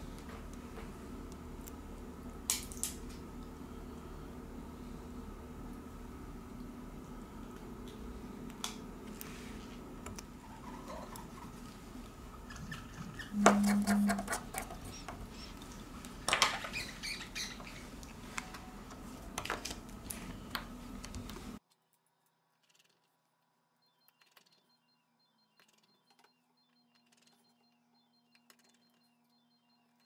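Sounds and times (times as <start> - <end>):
steady low hum: 0.0 - 21.6.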